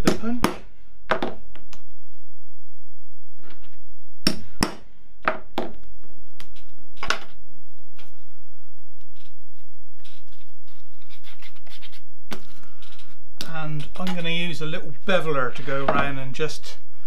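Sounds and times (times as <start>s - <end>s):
hammer striking leather punch: 4.3s - 5.4s.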